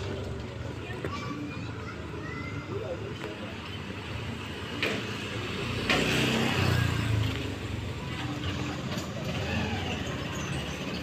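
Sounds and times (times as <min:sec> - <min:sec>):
vehicle passing by: 0:05.0 - 0:11.0.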